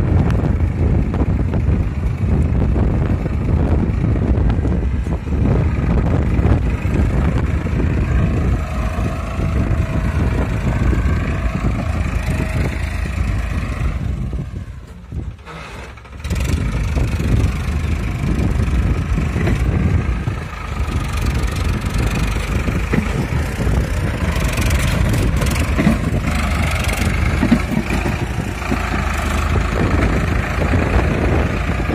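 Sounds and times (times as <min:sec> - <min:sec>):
tractor diesel engine under load: 0:00.0 - 0:31.9.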